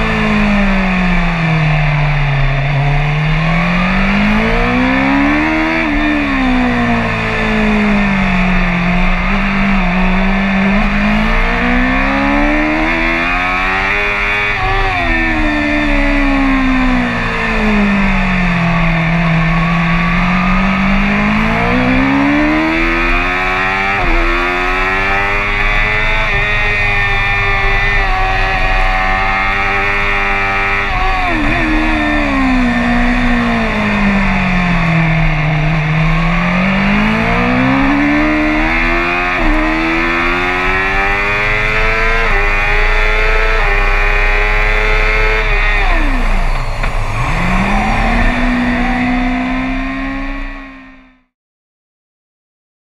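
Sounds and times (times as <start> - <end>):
motorcycle engine racing: 0.0 - 51.3.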